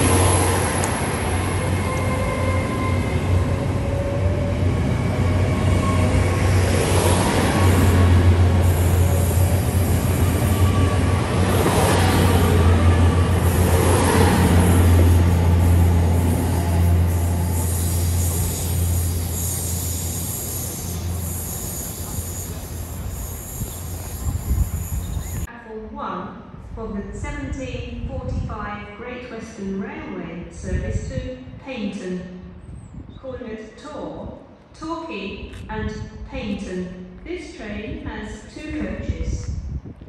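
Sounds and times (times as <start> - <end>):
diesel train engine hum: 0.0 - 25.5
train wheels rushing on rail: 0.0 - 25.5.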